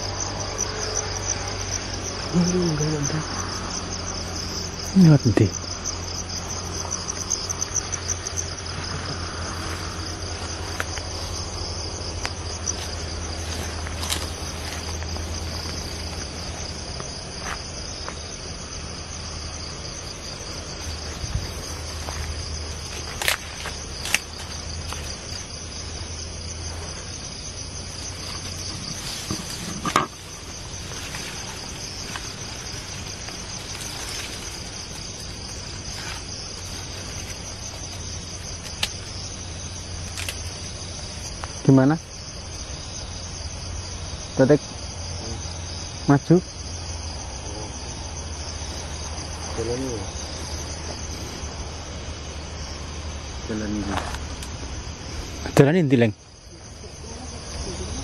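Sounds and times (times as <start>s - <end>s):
insects trilling: 0.0s - 58.0s
footsteps rustling through vegetation: 9.5s - 18.6s, 19.3s - 39.2s.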